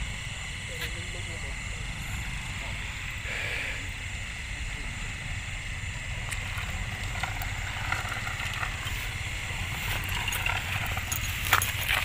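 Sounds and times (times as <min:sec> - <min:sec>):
night insects chorus: 0:00.0 - 0:12.0
grass crackling: 0:06.1 - 0:12.0.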